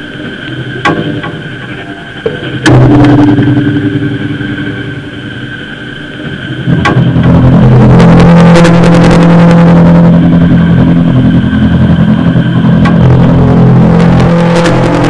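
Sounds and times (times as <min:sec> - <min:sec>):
crackling clicks: 0:00.0 - 0:07.2, 0:10.5 - 0:13.5
distorted harsh noise music: 0:00.0 - 0:15.0
low steady drone: 0:00.0 - 0:15.0.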